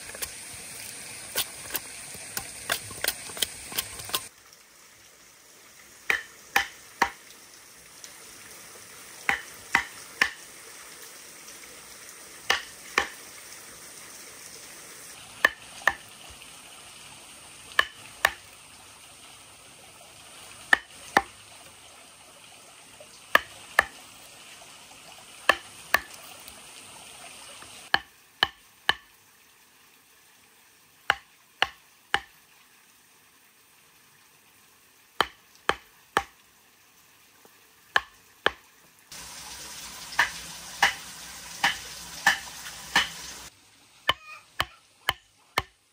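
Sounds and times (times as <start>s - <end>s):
mallet striking chisel: 6.1s - 7.2s, 9.3s - 10.4s, 12.5s - 13.2s, 17.8s - 18.4s, 27.9s - 29.1s, 35.2s - 36.3s, 40.2s - 41.0s, 41.6s - 43.2s, 44.1s - 45.8s.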